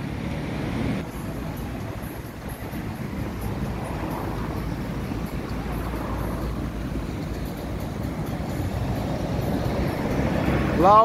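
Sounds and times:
cars driving past: 0:00.0 - 0:11.0
low road rumble: 0:00.0 - 0:11.0.

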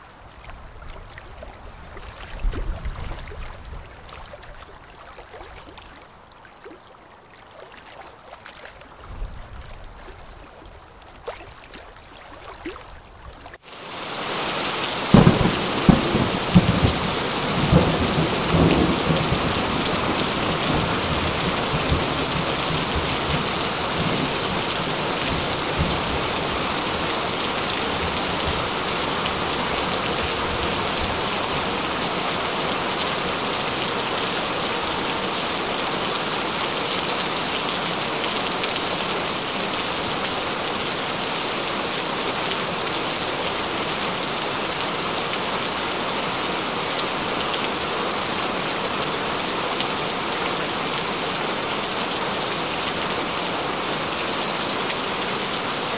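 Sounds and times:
heavy falling water hiss: 0:13.6 - 0:55.9.

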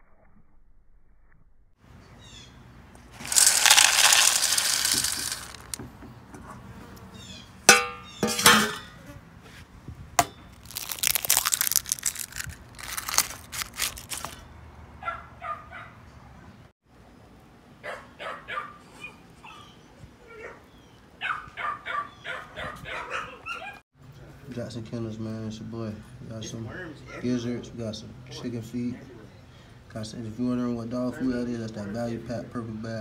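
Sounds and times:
kibble rattling into metal bowl: 0:03.2 - 0:05.8, 0:10.7 - 0:14.4
dogs whining and yipping: 0:18.2 - 0:23.8.

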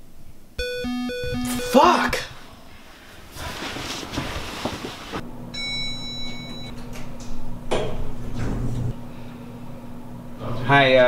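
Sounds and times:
electronic chime: 0:00.6 - 0:02.1
elevator hum: 0:00.6 - 0:02.2, 0:03.2 - 0:10.4
bedding rustling: 0:02.8 - 0:05.2.

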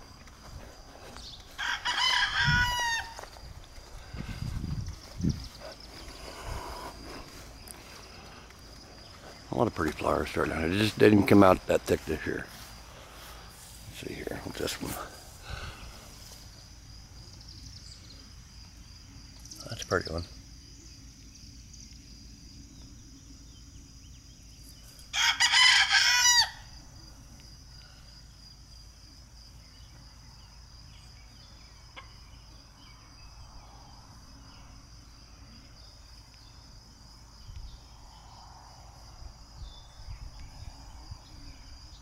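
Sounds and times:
rooster crowing: 0:01.5 - 0:03.4, 0:25.1 - 0:26.8.

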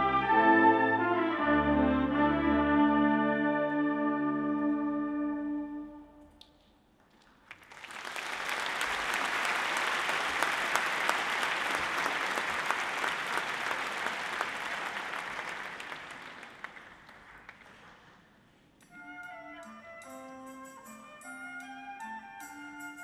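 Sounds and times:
audience clapping: 0:06.4 - 0:18.4.

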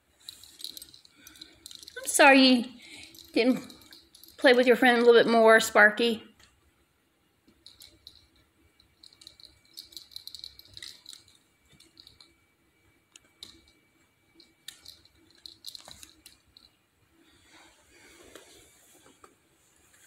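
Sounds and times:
soft rustle: 0:14.4 - 0:20.0.

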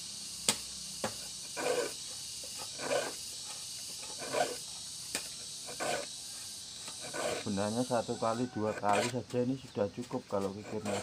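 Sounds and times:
metal file rasping on saw teeth: 0:01.5 - 0:03.2, 0:04.0 - 0:04.6, 0:05.6 - 0:06.1, 0:06.8 - 0:11.0.

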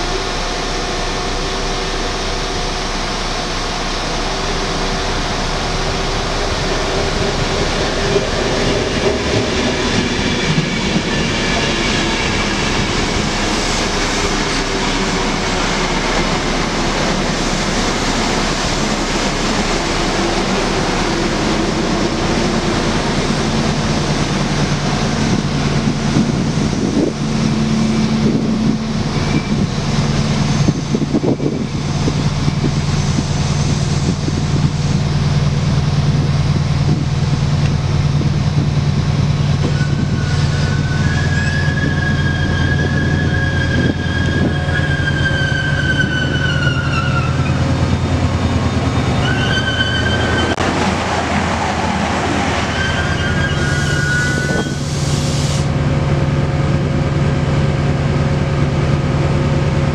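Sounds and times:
diesel engine hum: 0:00.0 - 0:41.1
train wheels rumbling on rail: 0:00.0 - 0:59.9.

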